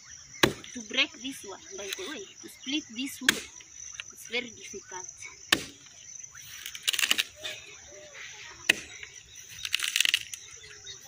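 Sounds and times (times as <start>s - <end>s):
high insect whine: 0.0s - 11.0s
axe chopping log: 0.4s - 0.8s, 3.2s - 3.6s, 5.5s - 5.9s, 8.7s - 9.0s
crackly rattles: 6.5s - 7.4s, 9.0s - 10.9s.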